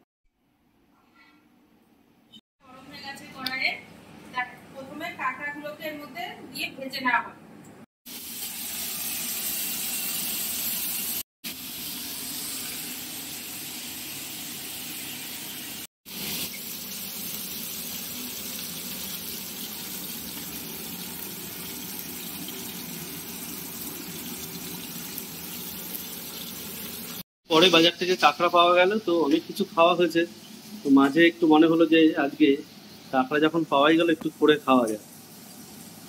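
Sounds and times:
oil sizzling in a pan: 8.1 - 36.0.

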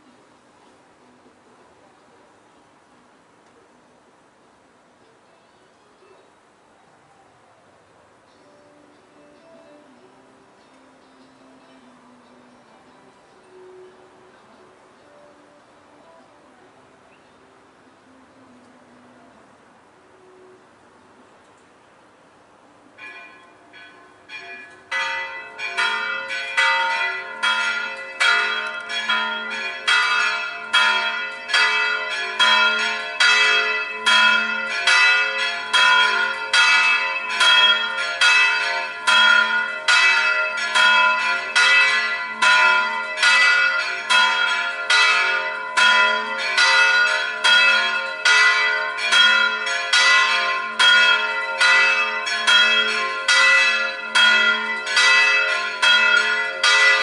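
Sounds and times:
church bells pealing: 23.0 - 57.0.

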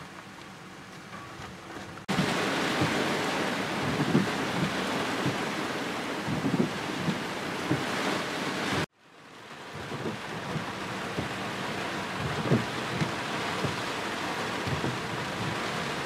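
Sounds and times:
heavy rain pouring: 0.0 - 16.0
wind gusts rumbling on microphone: 1.6 - 8.9, 9.7 - 11.5, 12.1 - 14.0, 14.6 - 16.0.

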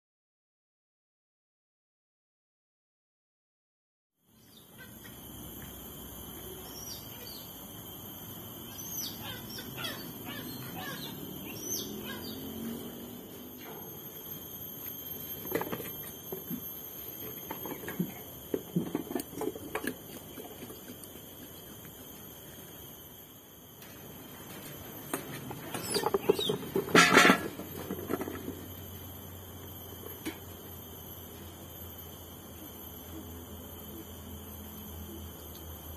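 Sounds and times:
high whine: 4.3 - 35.9
small birds chirping: 6.6 - 7.6, 8.7 - 12.7, 25.8 - 26.6.

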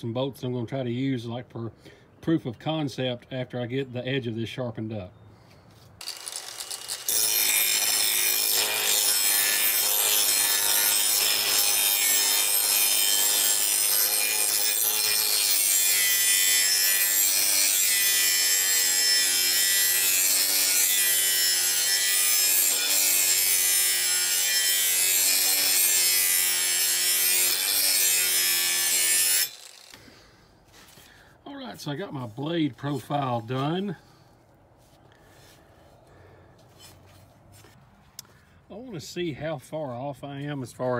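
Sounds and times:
angle grinder grinding metal: 6.0 - 30.2.

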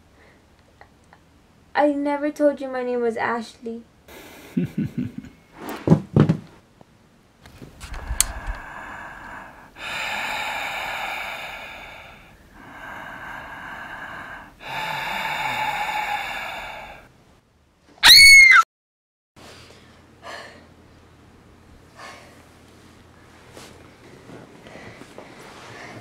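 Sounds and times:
girl breathing heavily: 7.8 - 17.1, 20.2 - 20.7, 21.9 - 22.5
shrill scream: 18.0 - 18.7.

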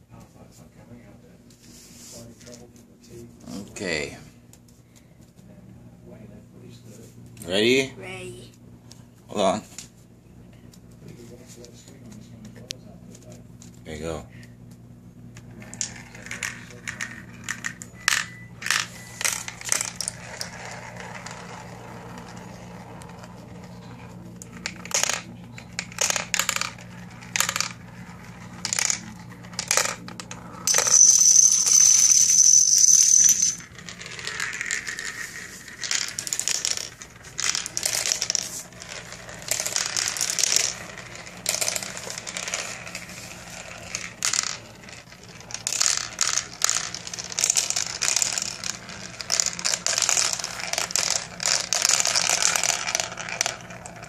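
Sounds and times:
marbles clattering through plastic run: 15.6 - 54.0
rattle with high ring: 29.6 - 43.2.

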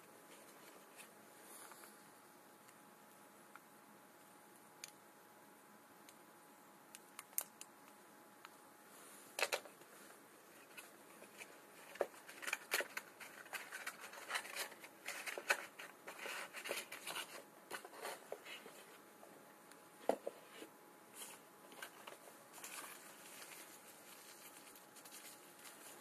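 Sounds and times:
cardboard scraping and rustling: 10.6 - 19.0.

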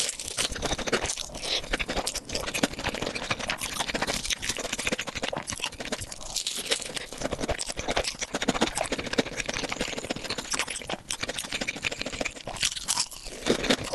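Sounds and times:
food being torn and chewed: 0.0 - 13.9.

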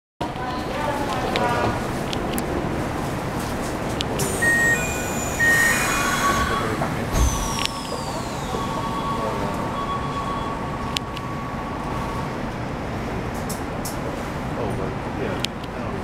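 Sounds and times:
sliding doors closing with thump: 3.7 - 10.5
faint high tones: 4.2 - 12.6
train door beeps: 4.2 - 12.7.

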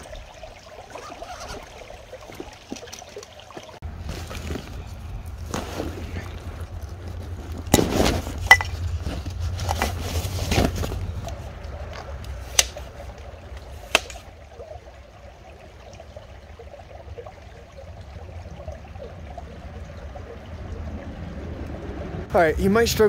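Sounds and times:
faint trickle of water: 0.0 - 7.7, 11.0 - 23.0
wind rumbling on microphone: 17.8 - 22.9.

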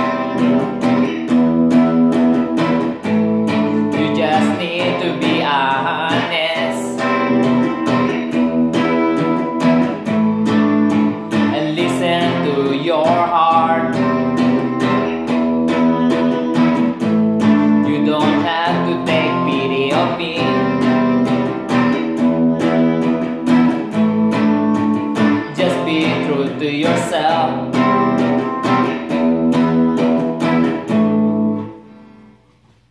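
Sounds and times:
electric guitar strumming chords: 0.0 - 32.9
man singing: 3.5 - 8.9, 11.0 - 22.0, 25.2 - 29.0.

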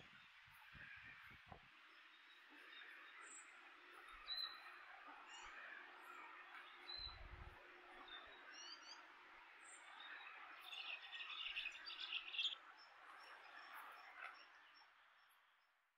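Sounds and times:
finches chirping: 8.0 - 15.4.

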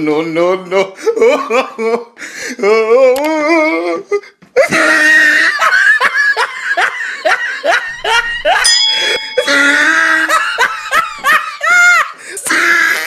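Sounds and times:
person laughing: 1.0 - 13.0
short ringing chime: 8.6 - 11.2.

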